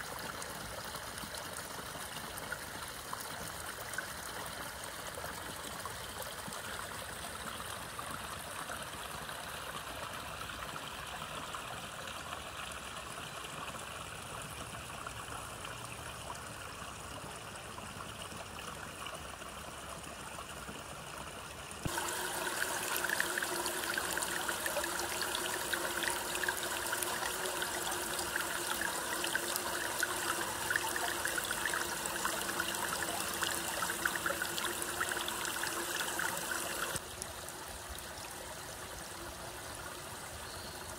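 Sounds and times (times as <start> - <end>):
stream water running: 0.0 - 40.9
water gushing onto metal screen: 21.8 - 37.0.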